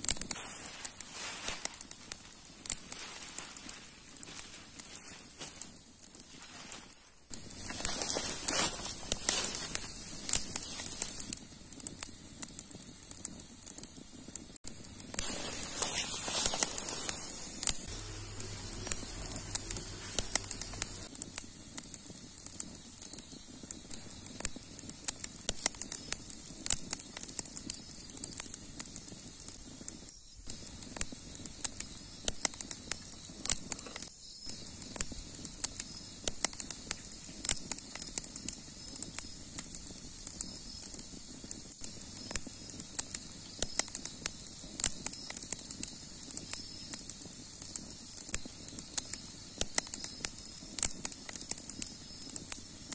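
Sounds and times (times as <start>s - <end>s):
campfire crackling and popping: 0.0s - 52.9s
hands rustling through grass: 0.1s - 11.3s, 14.8s - 21.1s.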